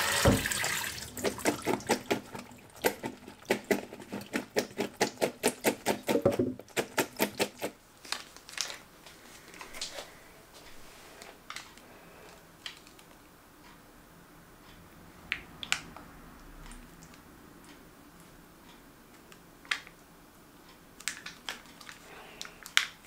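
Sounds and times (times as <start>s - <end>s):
rapid sharp kitchen taps: 1.2s - 7.7s.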